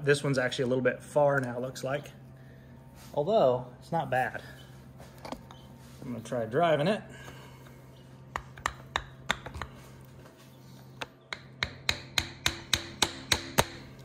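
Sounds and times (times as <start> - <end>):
hammer tapping on metal drift: 8.3 - 9.8, 11.0 - 14.0.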